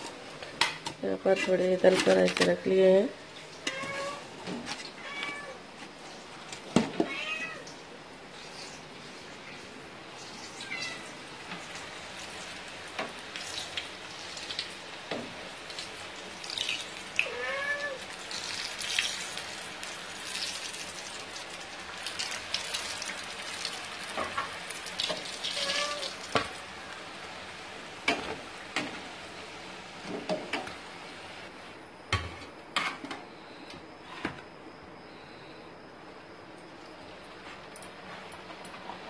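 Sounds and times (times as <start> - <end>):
cat meowing: 3.7 - 4.2, 5.0 - 5.6, 7.0 - 7.7, 10.6 - 11.1, 17.2 - 18.0, 25.5 - 26.2
deep-frying in hot oil sizzle: 8.3 - 31.4.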